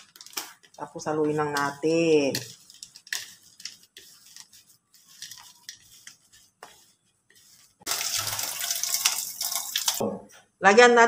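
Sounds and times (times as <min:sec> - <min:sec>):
hand squishing grated cassava: 0:00.0 - 0:09.1
running water hiss: 0:07.8 - 0:10.0.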